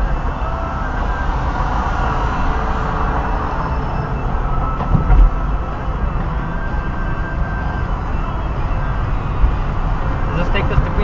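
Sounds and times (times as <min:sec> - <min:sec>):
car road noise and engine hum: 0:00.0 - 0:11.0
short thump: 0:04.8 - 0:05.4.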